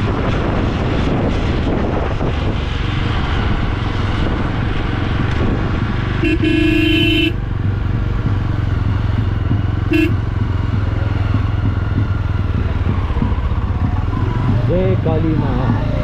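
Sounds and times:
motorcycle engine running: 0.0 - 16.0
road and wind noise: 0.0 - 16.0
motorcycle horn honking: 6.2 - 7.4, 9.8 - 10.2.

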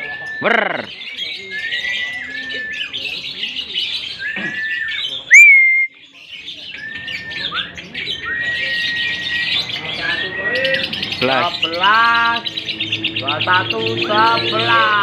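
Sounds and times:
birds chattering high-pitched: 0.0 - 15.0
loud rising bird whistle: 1.4 - 3.2, 4.1 - 6.0, 6.8 - 10.8
short whistled bird notes: 4.2 - 6.0.

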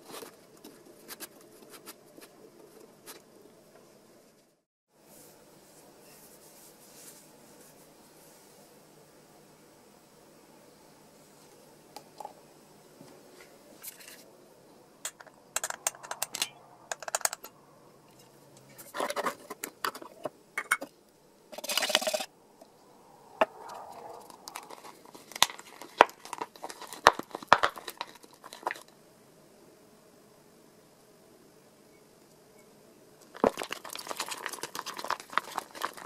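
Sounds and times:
screwdriver stirring in plastic cup: 21.6 - 22.3, 24.2 - 28.9, 33.3 - 36.0.

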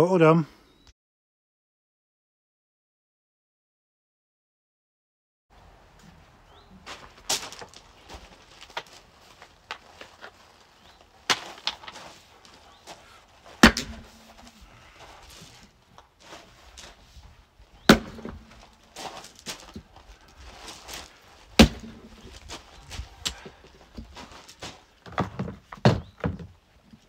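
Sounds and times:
axe blows splitting wood: 13.6 - 14.6, 17.8 - 19.1, 21.6 - 22.3.

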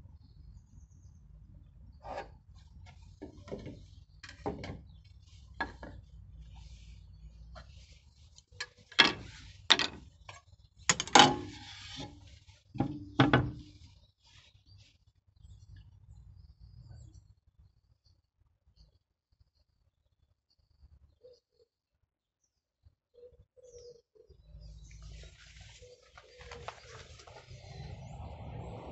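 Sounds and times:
tools clattering on timber: 3.2 - 4.8, 5.6 - 6.0, 8.6 - 12.2, 12.8 - 13.7
metal rail clanking: 8.6 - 10.0, 10.9 - 12.2.

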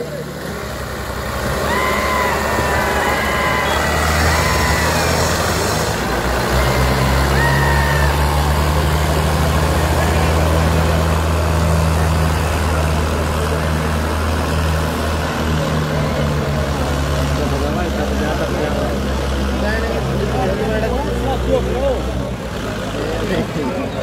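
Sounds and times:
tractor engines under heavy load: 0.0 - 24.0.

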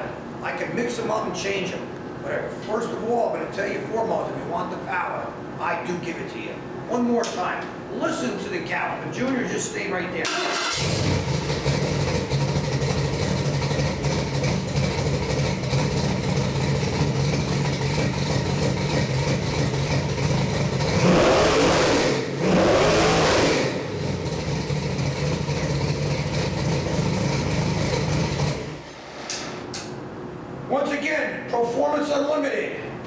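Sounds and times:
engine idling: 10.2 - 21.1, 23.5 - 29.0.

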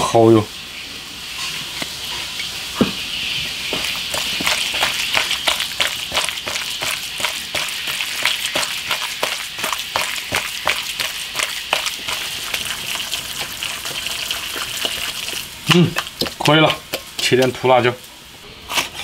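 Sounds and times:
steady hiss: 0.0 - 11.4
wet slaps of mixing meat by hand: 3.7 - 17.8.

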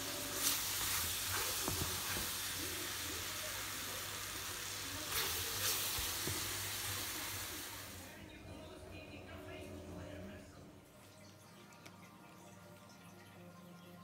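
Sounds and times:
syrup sizzling in a pan: 0.0 - 8.1.

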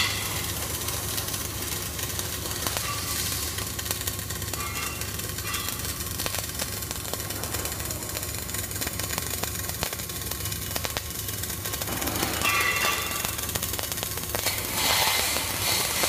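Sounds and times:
welding arc crackling: 0.0 - 16.0.

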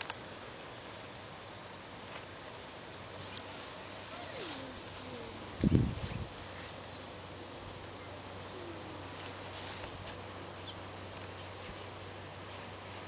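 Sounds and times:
soft bird chirps: 10.5 - 12.3.

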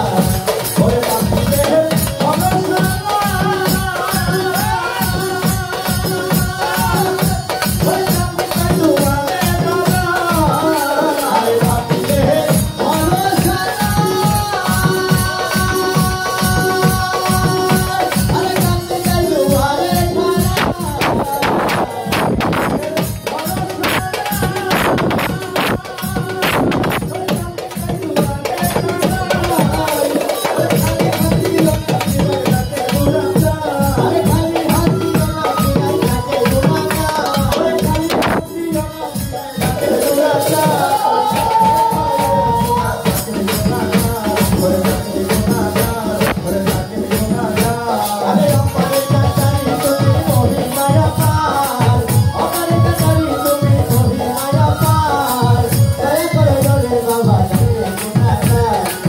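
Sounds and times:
fast shaken percussion rhythm: 0.0 - 59.0
man singing into a microphone: 0.0 - 59.0
low drum beats: 18.2 - 29.8.

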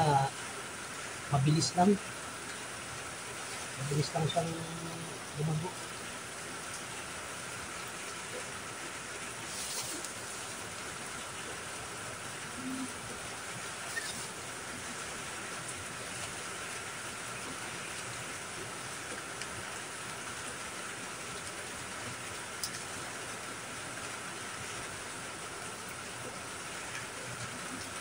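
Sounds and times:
steady rain: 0.0 - 28.0
brief rustles: 9.5 - 10.1.

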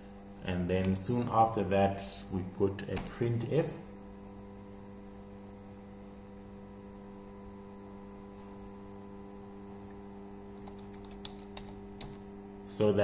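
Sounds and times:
low electrical hum: 0.0 - 13.0
computer keyboard keystrokes: 10.6 - 12.2.

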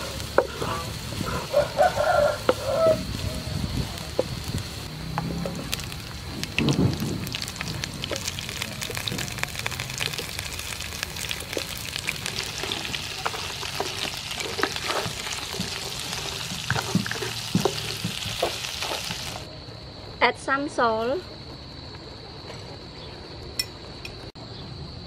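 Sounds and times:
prawns sizzling in oil: 0.0 - 19.5.

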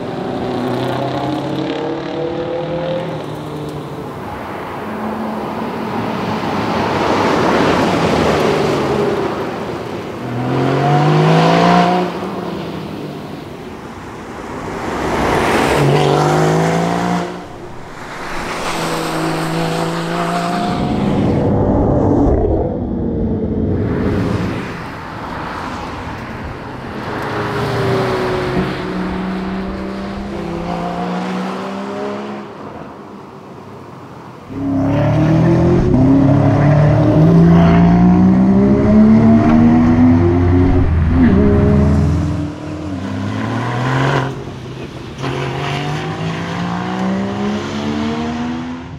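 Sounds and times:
sports car accelerating past: 15.0 - 32.6, 34.5 - 44.5.

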